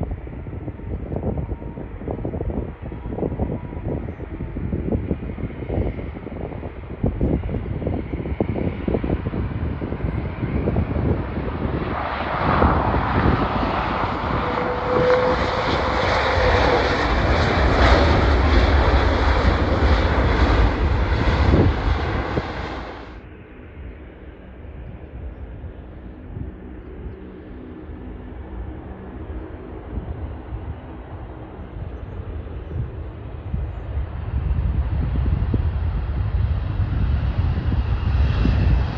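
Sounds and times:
gusty wind on microphone: 0:00.0 - 0:38.9
jet airliner engines running: 0:00.0 - 0:38.9.

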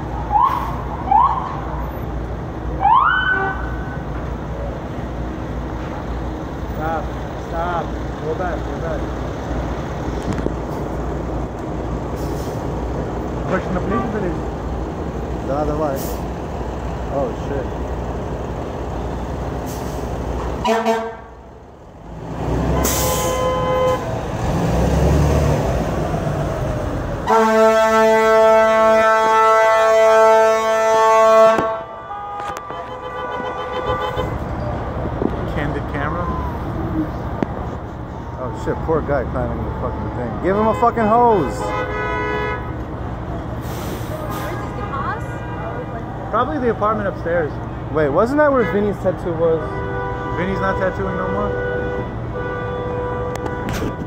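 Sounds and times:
heavy engine rumble: 0:00.0 - 0:03.0, 0:03.6 - 0:54.0
emergency vehicle siren whoops: 0:00.2 - 0:01.8, 0:02.8 - 0:04.0, 0:36.0 - 0:37.2, 0:37.9 - 0:40.4
steady horn blast: 0:13.5 - 0:14.4, 0:20.6 - 0:21.4, 0:22.8 - 0:24.2, 0:27.2 - 0:34.5, 0:40.4 - 0:42.8, 0:48.5 - 0:54.0
vehicle horn honks: 0:20.6 - 0:21.4, 0:22.8 - 0:24.1, 0:27.2 - 0:34.4, 0:40.6 - 0:42.7, 0:49.6 - 0:54.0.

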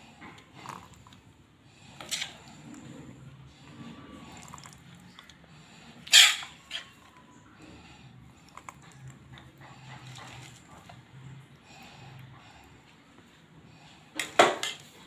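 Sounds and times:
ladle clinking and scraping: 0:01.9 - 0:03.3.

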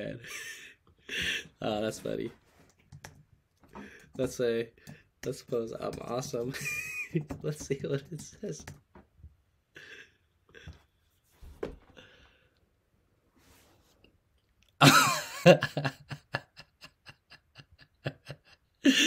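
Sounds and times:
man laughing: 0:00.0 - 0:02.0, 0:06.3 - 0:08.3, 0:14.8 - 0:19.0.

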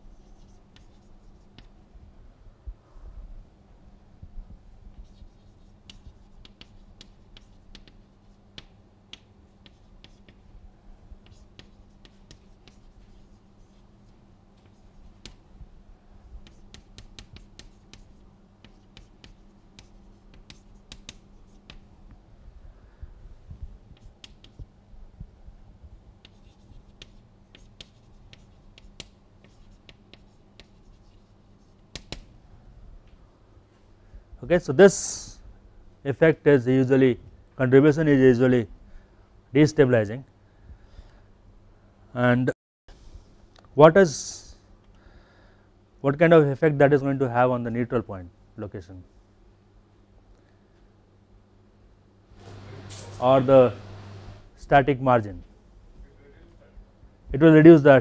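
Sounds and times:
low steady hum: 0:00.0 - 0:58.0
chalk scratching on blackboard: 0:00.1 - 0:01.7, 0:05.0 - 0:10.4, 0:11.2 - 0:15.4, 0:16.3 - 0:21.8, 0:24.0 - 0:24.6, 0:26.2 - 0:32.2, 0:52.4 - 0:54.5.

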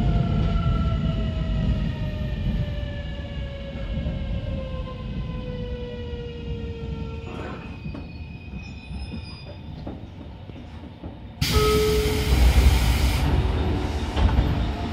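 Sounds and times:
brief tone: 0:11.4 - 0:12.5.

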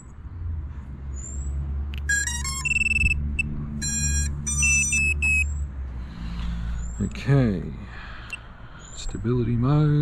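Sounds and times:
motor power-up beeps: 0:02.0 - 0:05.5.

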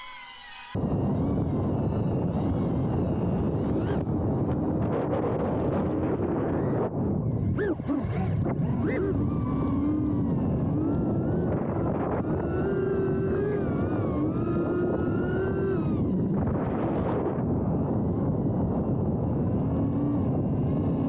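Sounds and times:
drone motors whining: 0:00.0 - 0:21.0
wind noise on microphone: 0:00.8 - 0:21.0.

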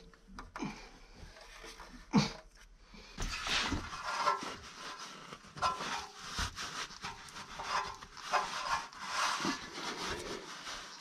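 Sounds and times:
cloth rag rubbing metal: 0:04.0 - 0:11.0.

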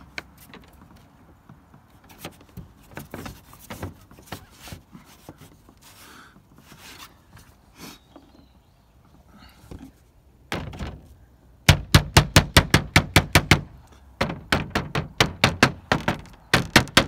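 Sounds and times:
rubber mallet knocking on roof: 0:11.7 - 0:17.0.

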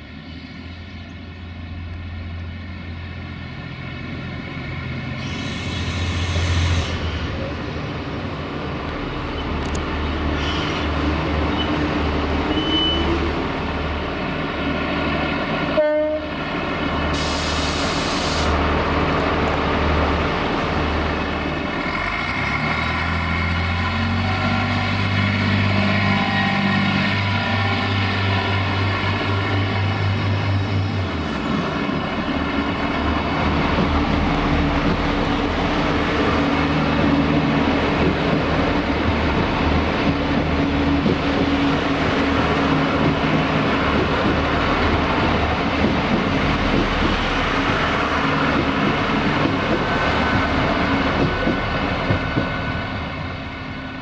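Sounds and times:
brief hiss: 0:17.2 - 0:18.6.

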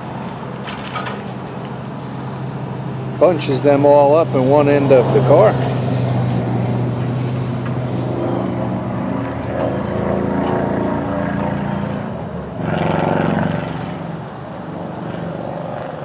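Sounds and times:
truck engine under hydraulic load: 0:00.0 - 0:03.9.

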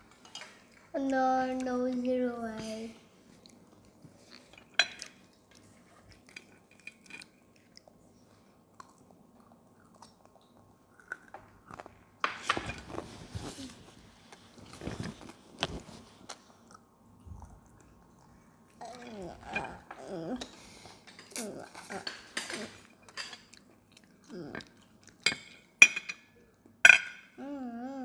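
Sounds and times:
children chewing crispy food: 0:00.0 - 0:12.2, 0:12.9 - 0:25.3.

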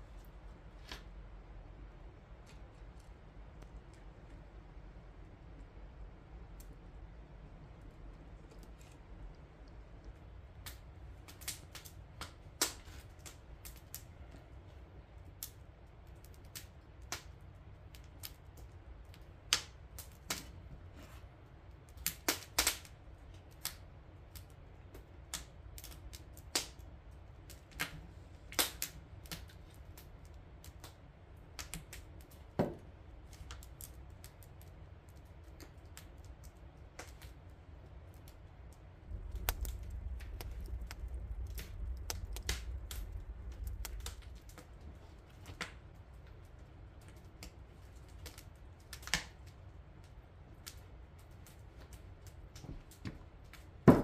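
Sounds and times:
firewood crackling and popping: 0:00.0 - 0:54.0
low rumble: 0:38.8 - 0:47.0.

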